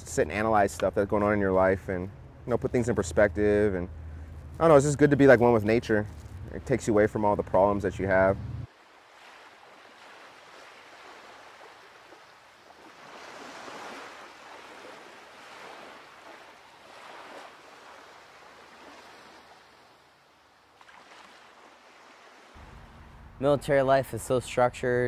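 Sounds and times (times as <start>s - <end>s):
ocean water washing around surfboard: 8.7s - 23.0s.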